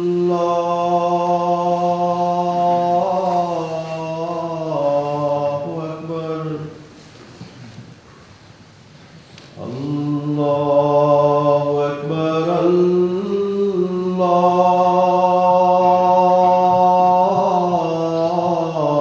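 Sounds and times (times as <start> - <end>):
man singing call to prayer: 0.0 - 7.0, 9.6 - 19.0.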